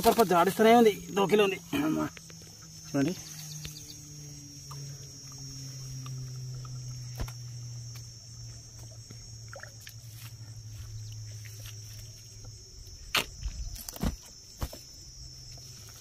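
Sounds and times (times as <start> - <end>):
high-pitched insect drone: 0.0 - 16.0
low steady hum: 0.0 - 16.0.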